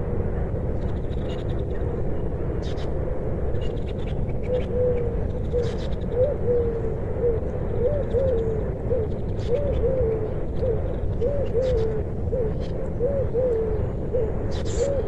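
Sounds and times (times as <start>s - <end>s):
steady low rumble: 0.0s - 15.0s
dove cooing: 4.4s - 15.0s.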